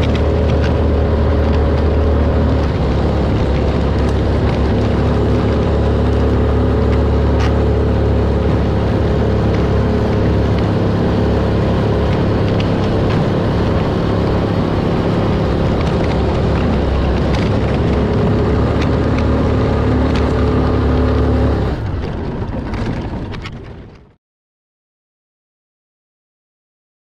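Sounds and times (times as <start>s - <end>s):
atv engine running: 0.0s - 24.1s.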